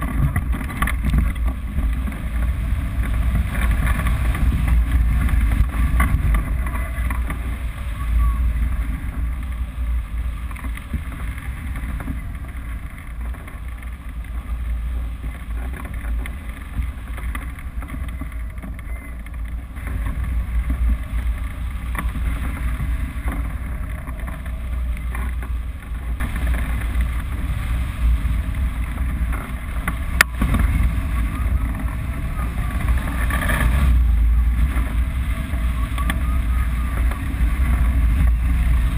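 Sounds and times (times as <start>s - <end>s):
wind buffeting microphone: 0.0s - 38.9s.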